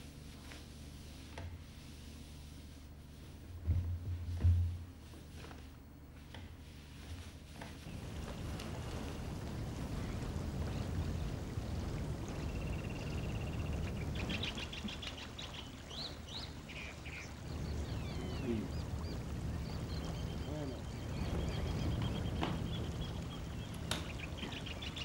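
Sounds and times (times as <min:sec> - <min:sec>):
low steady rumble: 0:00.0 - 0:25.0
wild birds calling: 0:07.9 - 0:25.0
ducks calling: 0:12.7 - 0:25.0.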